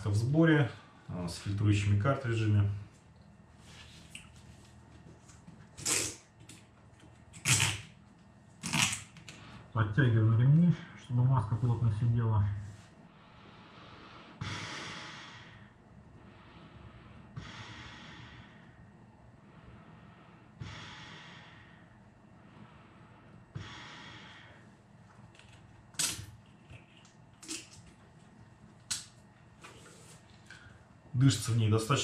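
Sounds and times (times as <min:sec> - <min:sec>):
breathing through gas mask: 0:13.3 - 0:18.9, 0:19.5 - 0:24.7.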